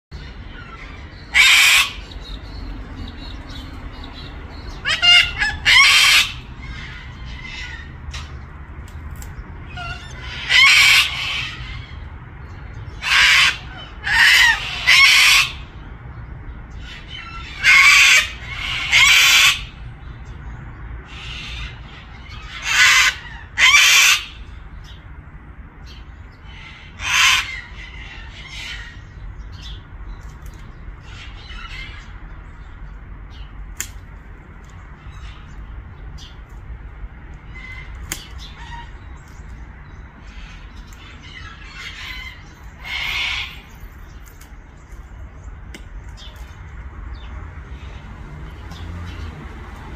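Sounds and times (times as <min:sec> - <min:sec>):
cockatoo squawking: 0:00.2 - 0:02.3, 0:04.7 - 0:08.3, 0:09.7 - 0:12.0, 0:13.0 - 0:15.7, 0:16.9 - 0:19.8, 0:21.1 - 0:24.5, 0:26.5 - 0:29.1, 0:37.5 - 0:39.2, 0:40.2 - 0:43.7.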